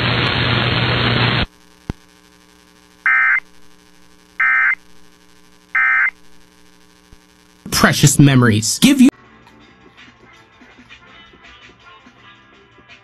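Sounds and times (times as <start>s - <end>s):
harsh digital data bursts: 3.0s - 3.4s, 4.4s - 6.5s.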